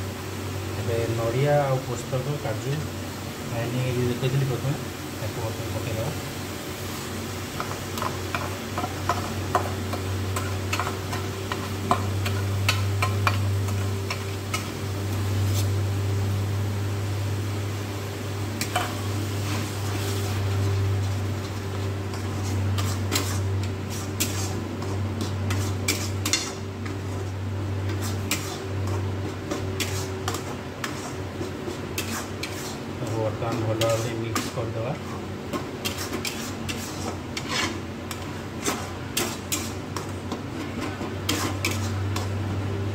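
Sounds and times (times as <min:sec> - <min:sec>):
metal spatula scraping iron pan: 0:18.6 - 0:27.2, 0:27.8 - 0:34.7, 0:35.8 - 0:42.3.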